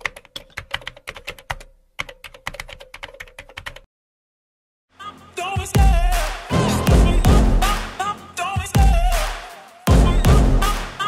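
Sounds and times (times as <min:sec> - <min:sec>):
music: 0:05.0 - 0:11.0.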